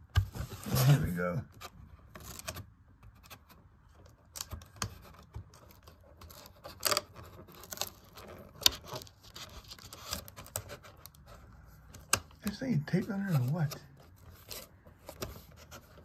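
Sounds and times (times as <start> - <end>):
cardboard box handled: 0.2 - 2.6.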